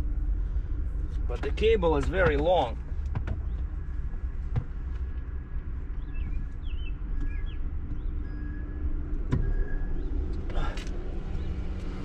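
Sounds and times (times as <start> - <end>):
low outdoor rumble: 0.0 - 12.0
faint bird chirps: 5.9 - 11.6.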